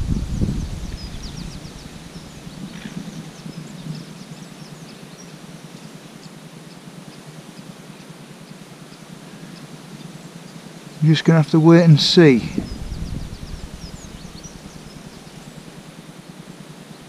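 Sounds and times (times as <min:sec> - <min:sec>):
light wind hiss: 0:00.0 - 0:17.0
faint bird chirps: 0:12.2 - 0:15.8.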